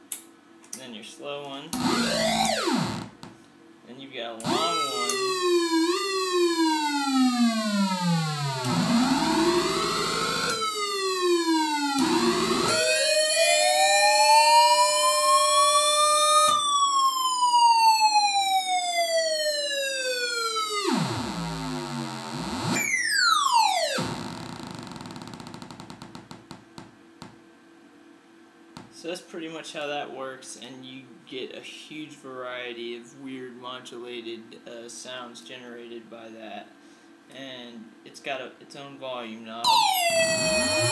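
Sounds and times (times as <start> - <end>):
synth sweeping like a siren: 1.8 - 3.1, 4.4 - 26.0, 39.7 - 40.9.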